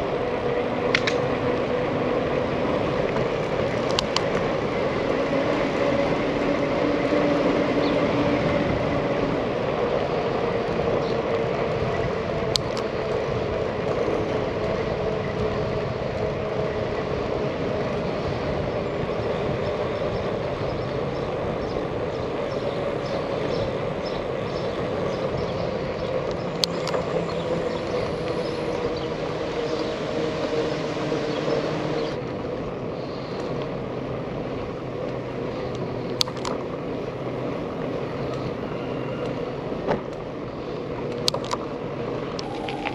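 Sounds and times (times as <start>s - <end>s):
wind and tyre noise: 0.0s - 42.9s
sharp clicks: 0.9s - 1.2s
low hum shifting pitch: 42.3s - 42.9s.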